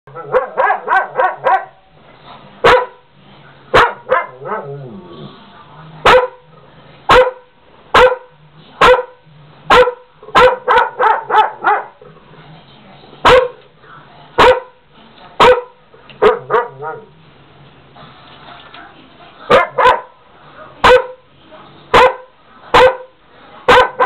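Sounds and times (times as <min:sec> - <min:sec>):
large dog barking: 0:00.1 - 0:01.8, 0:02.6 - 0:03.0, 0:03.7 - 0:04.8, 0:06.0 - 0:06.5, 0:07.1 - 0:12.0, 0:13.2 - 0:13.6, 0:14.4 - 0:14.8, 0:15.4 - 0:17.1, 0:19.5 - 0:20.2, 0:20.8 - 0:21.2, 0:21.9 - 0:23.1, 0:23.7 - 0:24.0.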